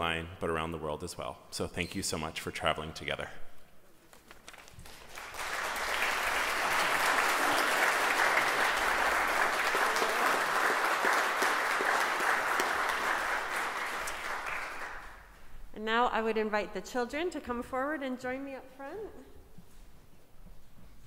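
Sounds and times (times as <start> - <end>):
congregation applauding: 4.1 - 15.4.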